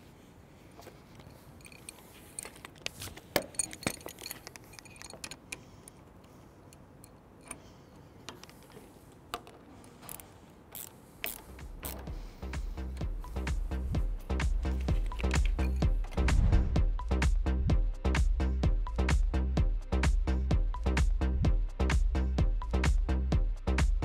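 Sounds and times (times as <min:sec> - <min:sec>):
metallic clicks of tools on screw: 0:01.6 - 0:07.7, 0:08.3 - 0:12.2, 0:14.7 - 0:16.2.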